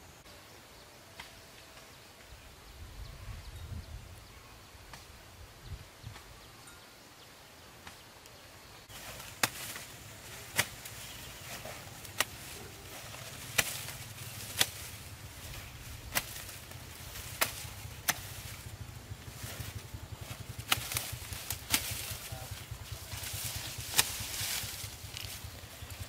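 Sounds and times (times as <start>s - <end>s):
hand tool chopping: 9.1s - 18.6s, 20.3s - 22.3s, 23.1s - 25.3s.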